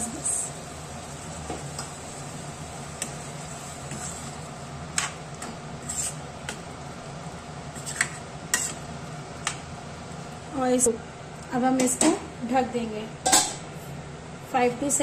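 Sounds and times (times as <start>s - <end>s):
spatula scraping wet curry: 5.8s - 6.6s, 7.7s - 8.9s.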